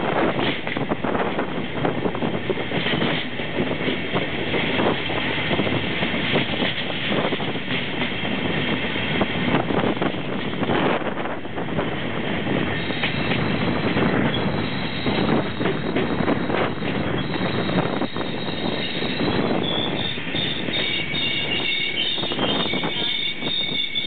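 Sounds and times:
train rumbling over track: 0.0 - 24.0
wheels clicking over rail joints: 0.0 - 24.0
wind on microphone: 0.0 - 24.0.

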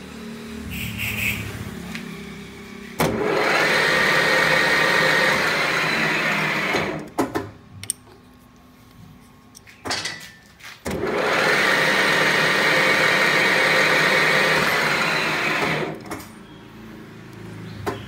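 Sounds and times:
metal lathe running with whine: 3.2 - 7.0, 11.0 - 16.0
handling of metal part: 7.8 - 10.8.

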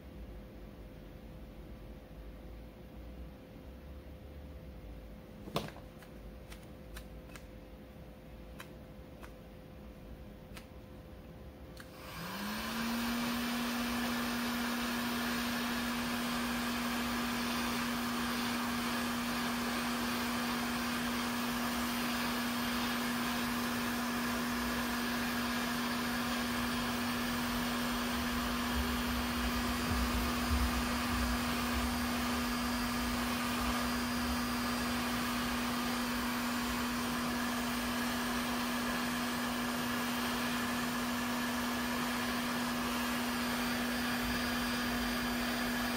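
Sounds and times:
heat gun fan humming: 11.7 - 45.9.

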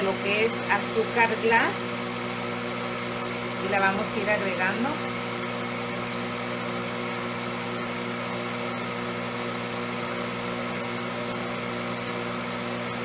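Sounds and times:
stand mixer whipping cream: 0.0 - 13.0.

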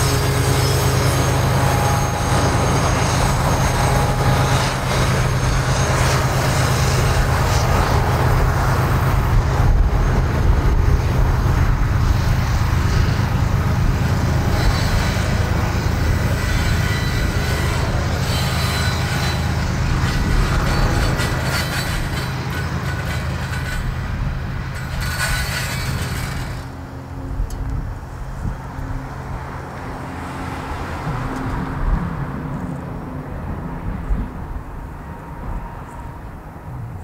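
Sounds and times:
high-pitched wheel squeal: 0.0 - 11.1, 12.1 - 26.8
train wheels rumbling on rail: 0.0 - 37.0.

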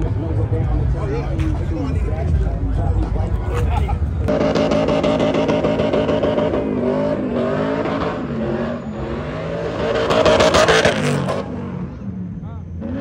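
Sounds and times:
car engine revving: 4.0 - 13.0.

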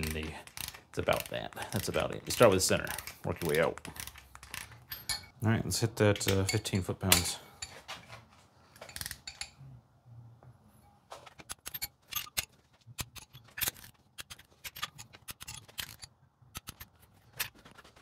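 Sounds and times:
socket clinking on nuts: 0.0 - 5.4, 11.4 - 17.6
ratchet wrench clicking: 0.4 - 2.0.

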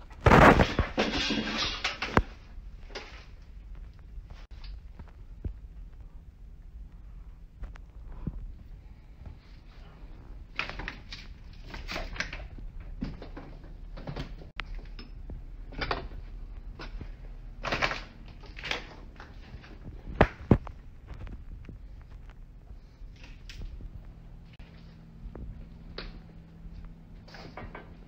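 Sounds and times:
footsteps: 19.0 - 28.0.

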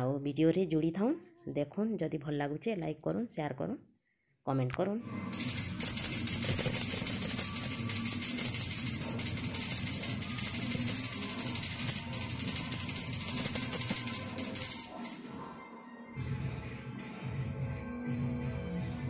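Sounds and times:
brass hand bell ringing rapidly: 5.3 - 16.2.

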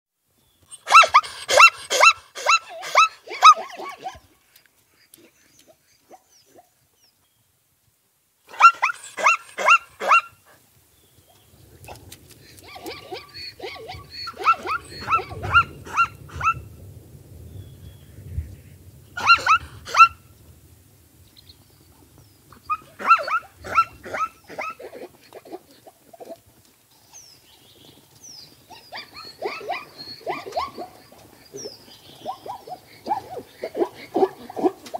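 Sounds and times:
young zebra calling: 12.6 - 16.6.

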